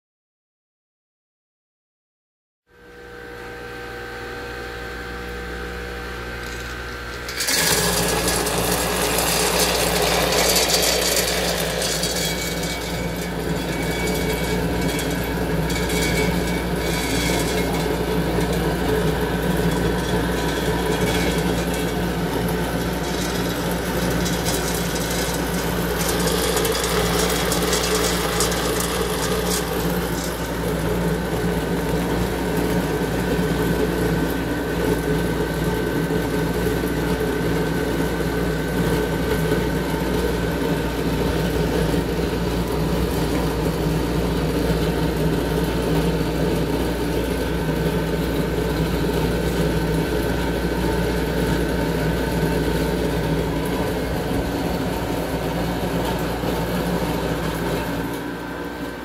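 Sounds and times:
electric motor humming: 2.8s - 34.1s
mill grinding nuts: 6.2s - 59.0s.

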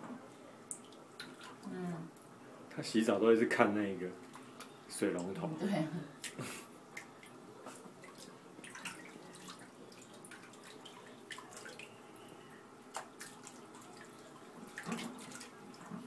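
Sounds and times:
bathwater drips and splashes: 0.7s - 2.3s, 6.2s - 16.0s.

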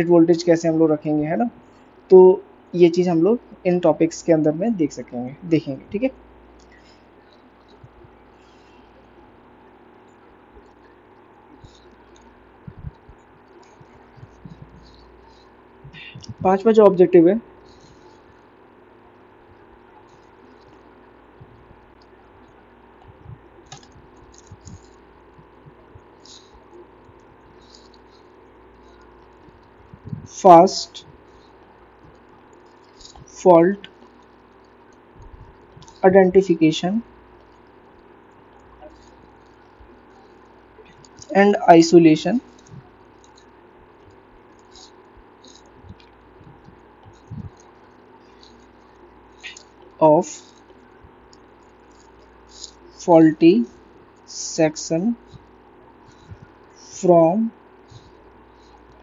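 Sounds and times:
faint room hum: 0.0s - 59.0s
stylus tapping and scratching: 5.9s - 16.9s, 17.5s - 36.1s, 37.0s - 41.6s, 42.3s - 54.3s, 55.2s - 57.0s
dull low thumps: 12.6s - 13.2s, 13.8s - 14.8s, 22.9s - 26.2s, 29.4s - 30.3s.

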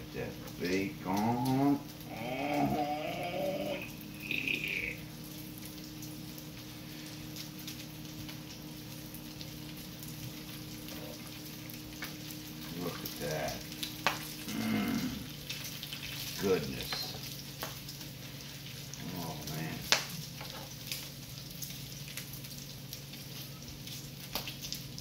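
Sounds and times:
bacon sizzling and crackling: 0.0s - 25.0s
low hum: 0.3s - 15.9s.

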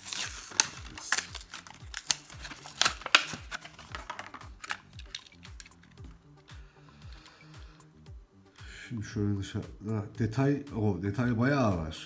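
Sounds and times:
plastic packaging crackling: 0.0s - 6.1s.

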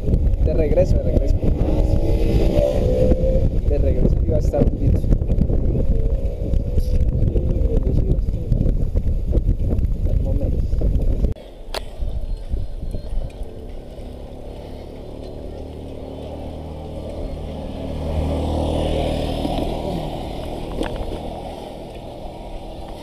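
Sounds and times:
vehicle engine passing by: 1.0s - 4.1s, 12.6s - 23.0s.

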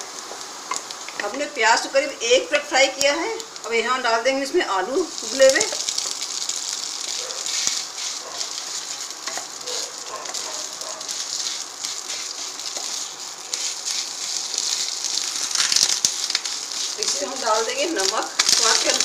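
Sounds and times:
food sizzling in hot oil: 0.0s - 19.0s
wooden spatula scraping a pan: 16.8s - 18.2s.

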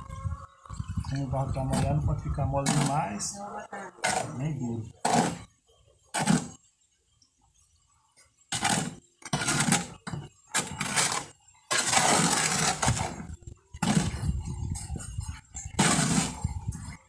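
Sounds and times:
trowel scraping wet mortar: 2.6s - 3.3s, 4.0s - 5.5s, 6.1s - 6.6s, 8.5s - 14.2s, 15.7s - 16.6s.

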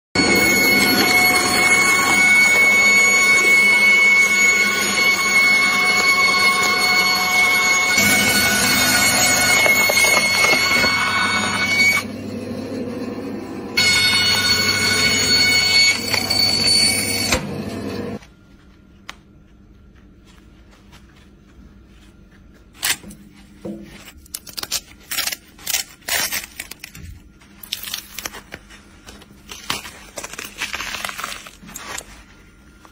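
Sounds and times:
saw blade whining: 0.2s - 18.2s
layers ripping apart: 24.1s - 32.3s.

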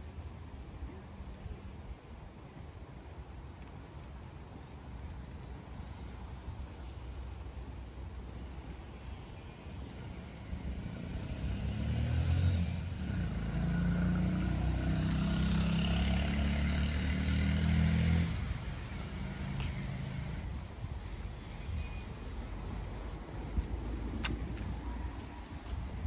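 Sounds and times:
vehicle engine deep hum: 6.0s - 26.0s.

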